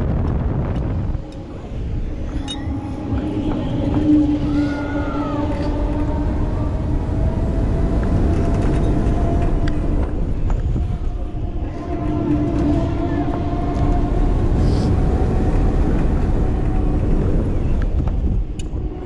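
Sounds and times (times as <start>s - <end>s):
rising and falling whine: 0.0s - 18.8s
ride mechanical hum: 0.0s - 19.0s
wind rushing over microphone: 0.0s - 19.0s.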